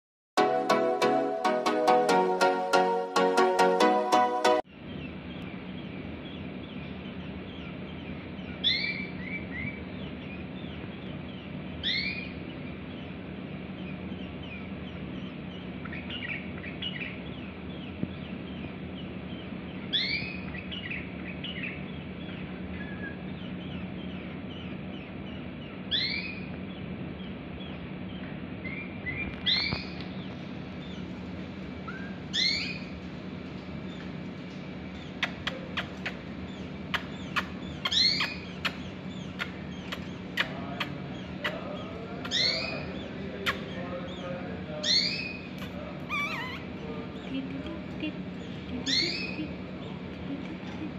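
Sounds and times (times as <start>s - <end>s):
steady low hum: 0.4s - 50.9s
soft bird chirps: 4.7s - 31.2s, 31.8s - 33.0s, 34.9s - 50.9s
bird whistled calls: 36.9s - 41.6s.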